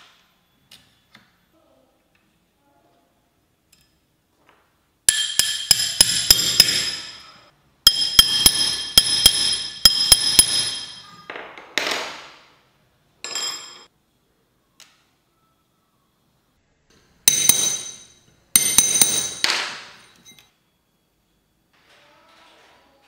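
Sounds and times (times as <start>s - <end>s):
hammer striking steel rod: 5.1s - 11.2s, 17.3s - 20.1s.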